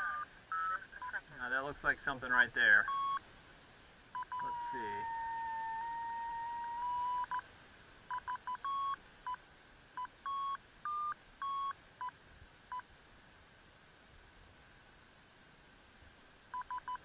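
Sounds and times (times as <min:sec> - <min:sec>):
short and longer beeps: 0:02.8 - 0:03.2, 0:04.2 - 0:07.4, 0:08.1 - 0:09.4, 0:10.0 - 0:12.1
steady electronic tone: 0:04.3 - 0:07.4.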